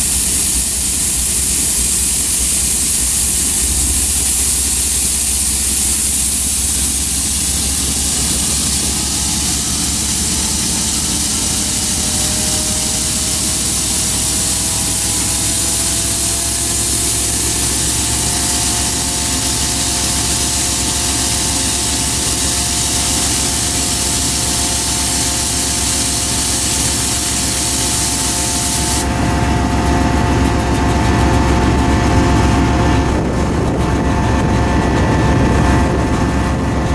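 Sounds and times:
loud hiss: 0.0 - 31.0
diesel locomotives idling: 0.0 - 36.9
steady whining tones: 0.0 - 36.9.

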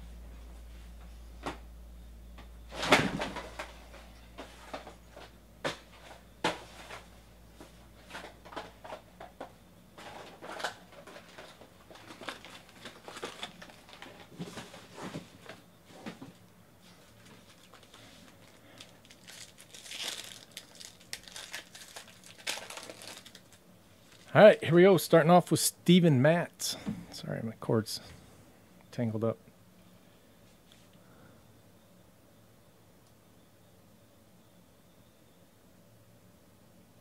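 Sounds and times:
card packaging crinkling: 10.0 - 15.3, 17.2 - 24.4.

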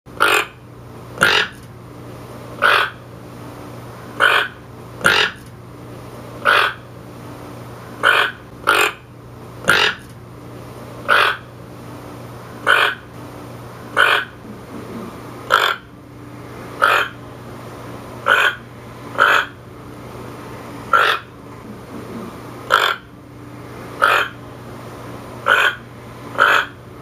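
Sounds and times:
toucan croaking calls: 0.2 - 0.6, 1.2 - 1.6, 2.6 - 3.0, 4.2 - 5.4, 6.4 - 6.8, 8.0 - 9.0, 9.7 - 10.1, 11.1 - 11.5, 12.6 - 13.1, 14.0 - 14.4, 15.5 - 15.9, 16.8 - 17.2, 18.2 - 19.6, 20.9 - 21.3, 22.7 - 23.1, 24.0 - 24.4, 25.4 - 26.8
faint low hum: 12.0 - 24.2.

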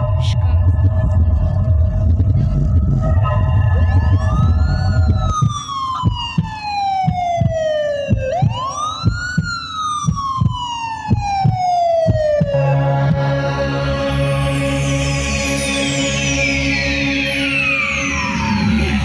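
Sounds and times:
siren wail in dance music: 0.0 - 19.0
steady drum beat: 0.2 - 13.2.

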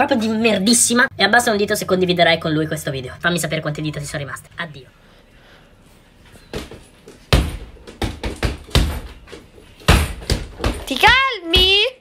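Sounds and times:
thumps and slaps of hitting: 6.5 - 11.8.

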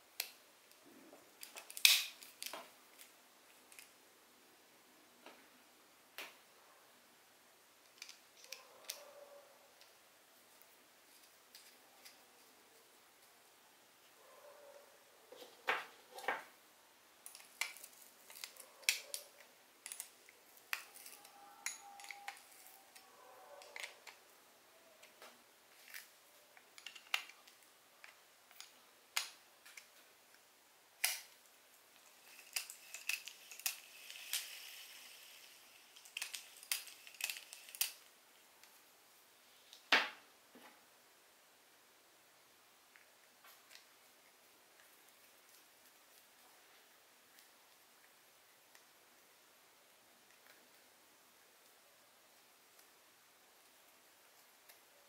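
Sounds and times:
small parts and tools clicking: 7.8 - 9.1, 17.2 - 24.2, 25.0 - 30.4, 31.0 - 38.8.

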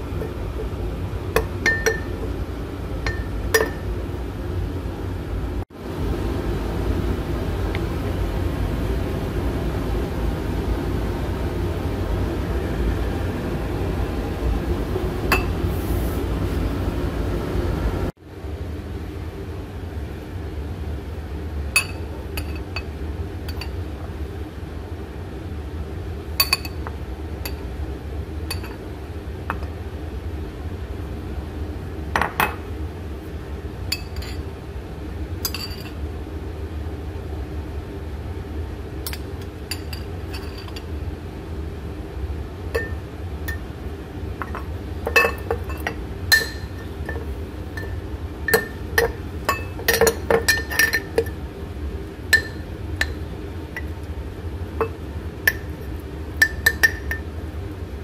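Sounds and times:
metal spoon clinking on ceramic: 45.1 - 47.2, 48.5 - 51.4, 56.4 - 57.2.

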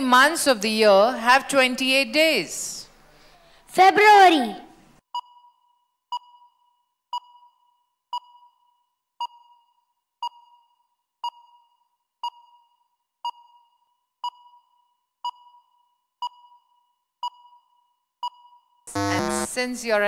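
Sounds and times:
countdown timer beeping: 18.3 - 19.6.

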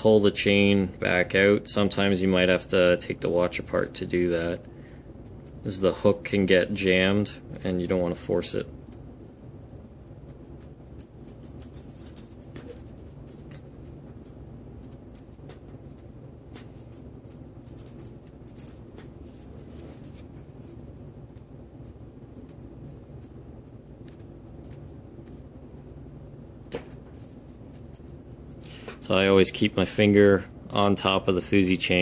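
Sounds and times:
steady low hum: 0.0 - 32.0
metal watch parts clicking: 16.6 - 18.9.

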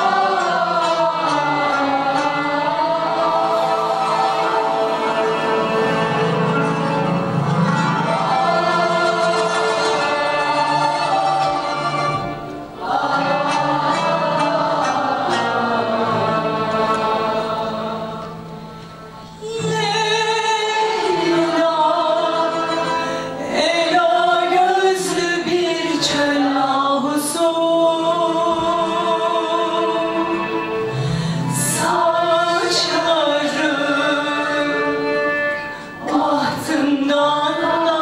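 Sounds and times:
woman singing with vibrato: 0.0 - 6.6, 19.3 - 38.0
violins playing: 0.0 - 26.5.

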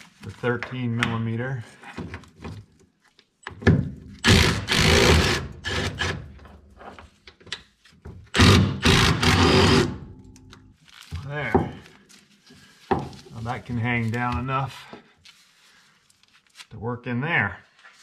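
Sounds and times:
impact driver hammering bolts: 3.6 - 6.3, 8.3 - 10.3.

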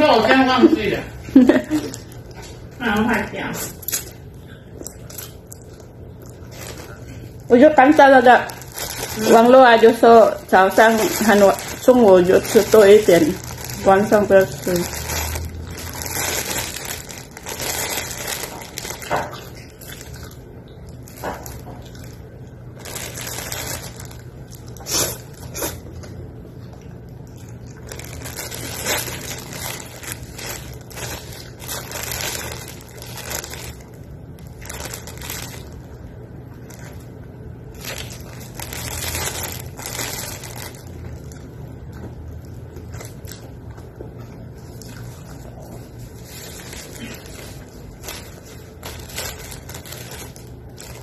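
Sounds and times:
plastic bag crinkling: 0.0 - 25.9, 27.0 - 43.6, 44.5 - 51.0
steady low hum: 0.0 - 51.0
person chewing noodles: 3.7 - 7.5, 15.0 - 39.9.

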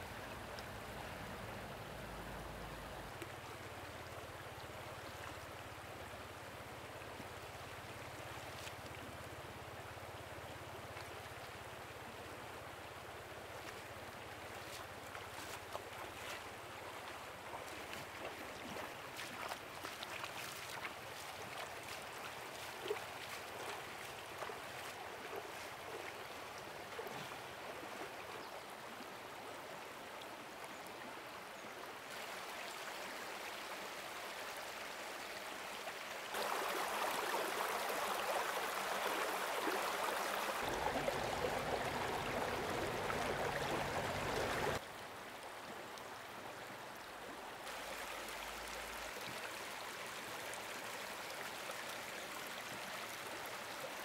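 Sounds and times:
stream water rushing: 0.0 - 54.0.

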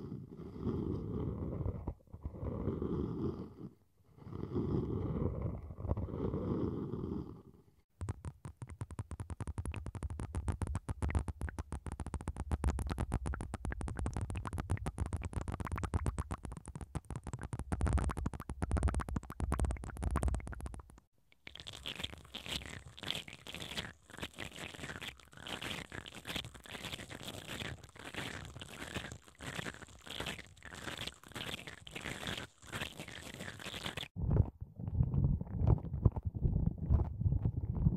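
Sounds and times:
brushes scratching in wooden balls: 21.7 - 34.1
deep low rumble: 34.2 - 37.9.

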